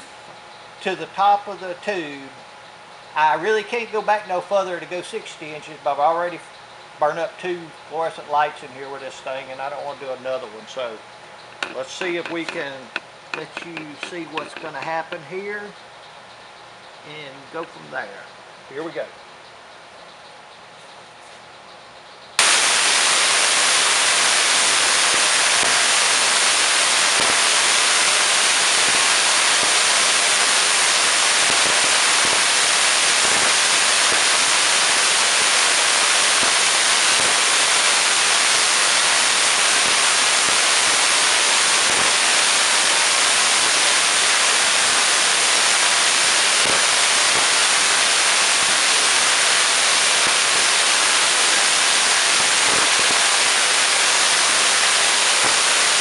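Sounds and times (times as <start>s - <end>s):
tesla coil crackling arcs: 7.2s - 15.8s, 22.4s - 56.0s.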